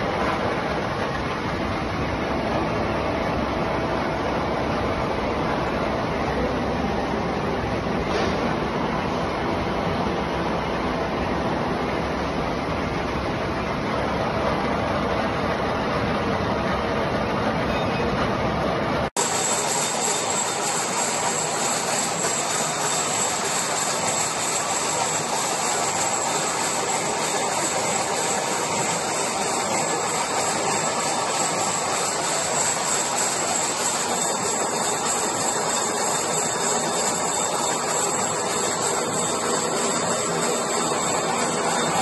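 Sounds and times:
gear cutting machine running: 19.2 - 42.0.

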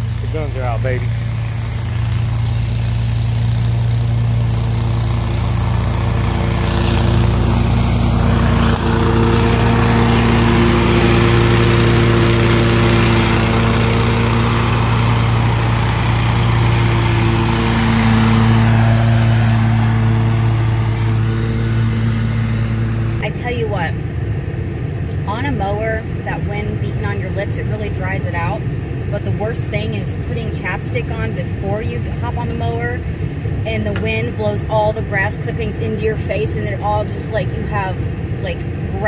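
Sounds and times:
lawn mower engine running: 0.0 - 23.3.

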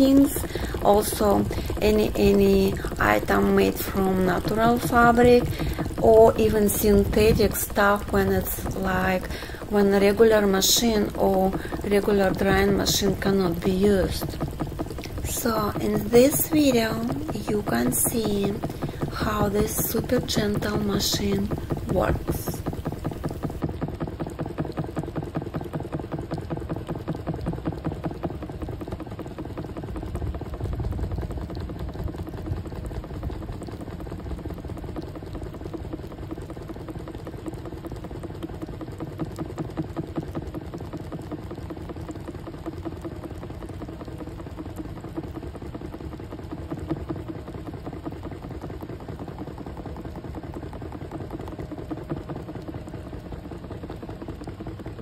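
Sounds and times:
spin dryer running: 0.0 - 25.2.

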